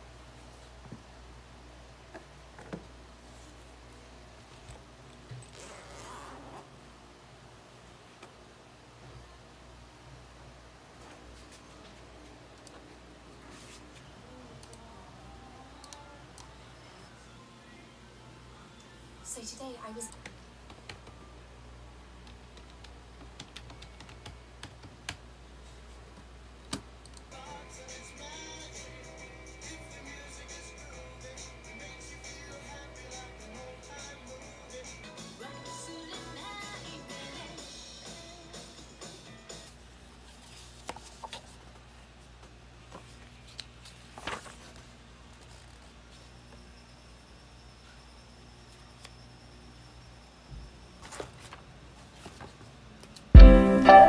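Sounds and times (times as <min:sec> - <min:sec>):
typing on computer keyboard: 0:22.5 - 0:25.2
background music: 0:27.3 - 0:39.7, 0:53.4 - 0:54.0.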